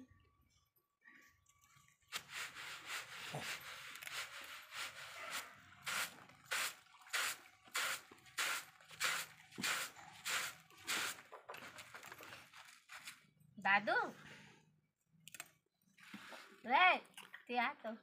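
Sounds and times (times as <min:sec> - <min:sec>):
hands scraping powder on plastic: 0:02.1 - 0:11.9.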